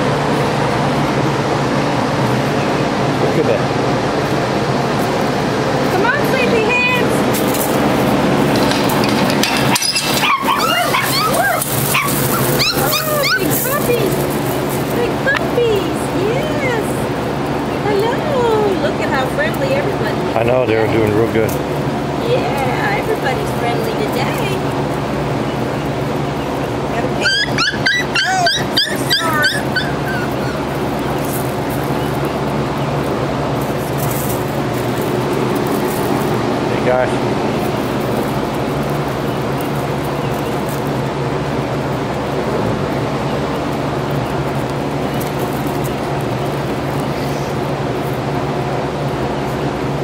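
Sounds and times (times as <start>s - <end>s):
steady background noise: 0.0s - 50.0s
steady low hum: 0.0s - 50.0s
puppies yipping and whining: 8.5s - 18.7s, 25.4s - 33.2s
puppy yipping and whimpering: 9.7s - 14.2s, 27.1s - 31.3s.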